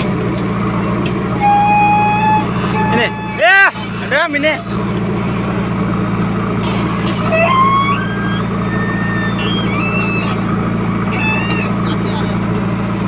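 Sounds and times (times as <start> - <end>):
diesel engine running: 0.0 - 13.0
high squealing tones: 1.3 - 4.9, 6.6 - 12.1.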